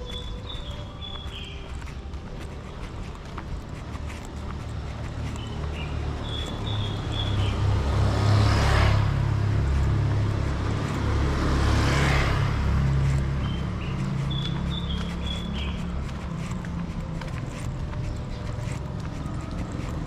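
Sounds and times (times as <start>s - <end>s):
low engine hum: 0.0s - 20.0s
vehicles passing close: 0.0s - 20.0s.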